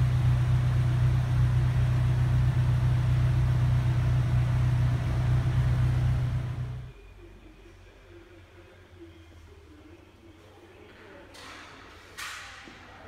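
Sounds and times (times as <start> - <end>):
car engine idling: 0.0 - 6.9.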